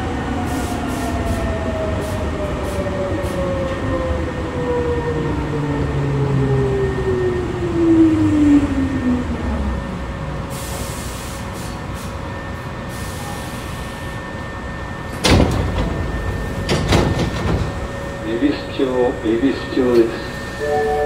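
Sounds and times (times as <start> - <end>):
train traction motor whine: 0.0 - 21.0
sliding doors clunking: 15.0 - 18.3.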